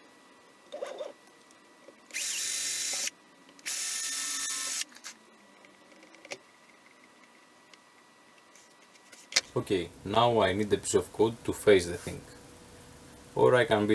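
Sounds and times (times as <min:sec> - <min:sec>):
cordless drill driving screws: 0:02.1 - 0:04.9.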